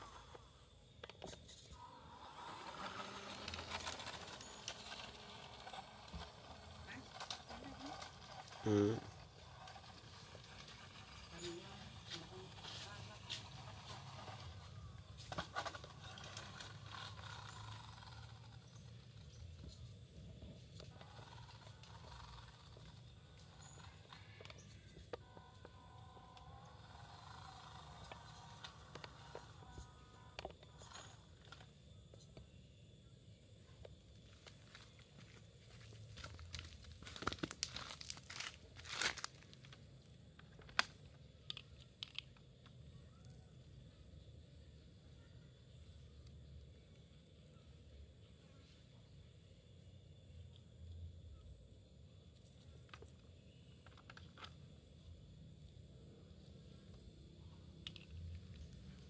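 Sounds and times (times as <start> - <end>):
toy truck motor whirring: 0.0 - 32.2
scuffing and crinkling handling noise: 34.2 - 39.8.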